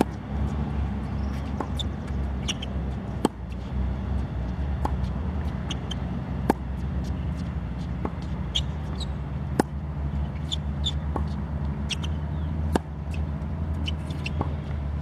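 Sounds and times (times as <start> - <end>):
steady low rumble: 0.0 - 10.4
racket hitting tennis ball: 0.0 - 14.6
shoe squeaks: 1.0 - 3.8, 4.8 - 6.2, 7.0 - 14.7.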